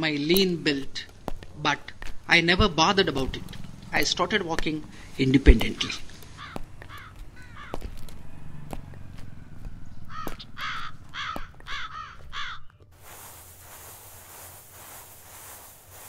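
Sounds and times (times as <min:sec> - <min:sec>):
crows cawing: 0:06.2 - 0:08.4, 0:10.1 - 0:12.7
outdoor hiss: 0:13.0 - 0:16.0.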